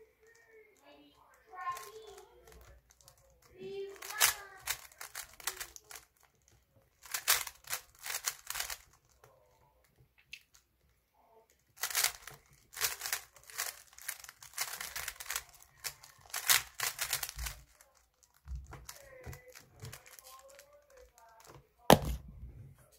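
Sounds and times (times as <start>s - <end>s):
puzzle cube clicking: 4.0s - 6.3s, 7.0s - 9.3s, 11.8s - 22.2s.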